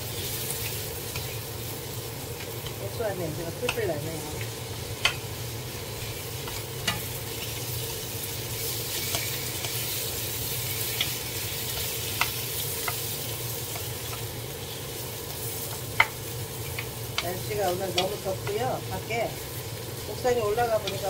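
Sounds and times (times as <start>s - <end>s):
vegetables sizzling in frying pan: 0.0s - 21.0s
spatula tapping pan: 3.5s - 4.1s, 4.9s - 5.3s, 6.4s - 7.2s, 10.8s - 14.4s, 15.6s - 18.7s, 20.5s - 21.0s.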